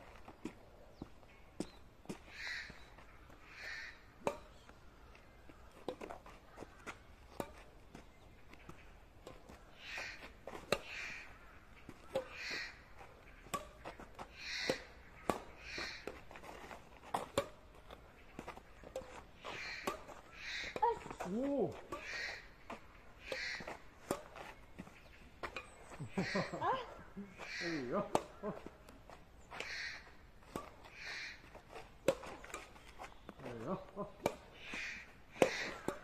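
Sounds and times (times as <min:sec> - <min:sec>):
crows cawing: 0:02.3 - 0:04.1, 0:09.6 - 0:10.2, 0:10.8 - 0:16.2, 0:19.4 - 0:20.8, 0:22.0 - 0:22.6, 0:23.2 - 0:23.8, 0:26.2 - 0:28.7, 0:29.6 - 0:30.2, 0:30.9 - 0:31.4, 0:34.6 - 0:36.0
rackets striking shuttlecock: 0:04.2 - 0:04.8, 0:06.9 - 0:09.6, 0:11.8 - 0:16.3, 0:17.1 - 0:26.5, 0:27.4 - 0:29.0, 0:29.6 - 0:33.4, 0:34.2 - 0:36.0.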